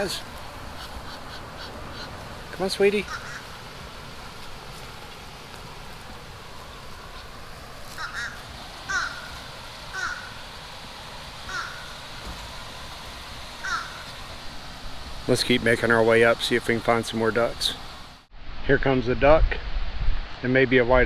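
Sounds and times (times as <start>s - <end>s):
low background noise: 0.0s - 19.5s
crow cawing: 3.0s - 3.6s, 7.9s - 10.4s, 11.4s - 12.0s, 13.6s - 14.2s.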